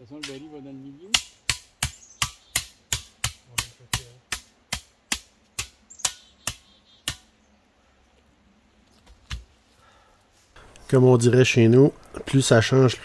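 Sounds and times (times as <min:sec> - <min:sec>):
hammer strikes: 0:01.1 - 0:07.3.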